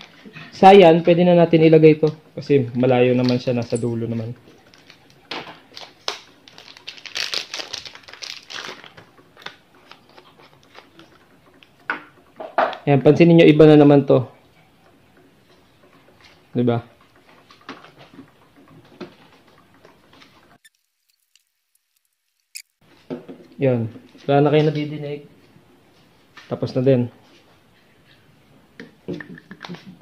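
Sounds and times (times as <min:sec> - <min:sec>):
plastic packaging crinkling: 0:04.6 - 0:11.1, 0:20.6 - 0:22.8.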